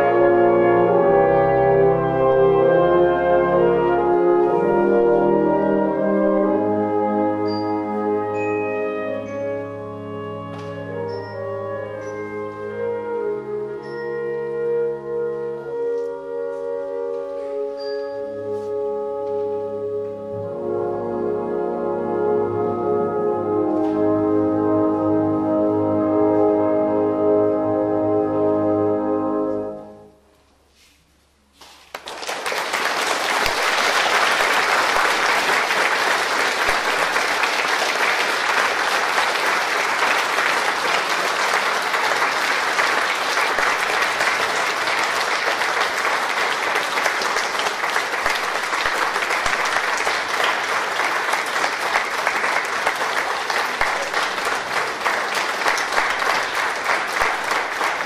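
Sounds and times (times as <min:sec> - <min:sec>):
wind band chord: 0:00.0 - 0:17.6
audience applause: 0:31.9 - 0:58.0.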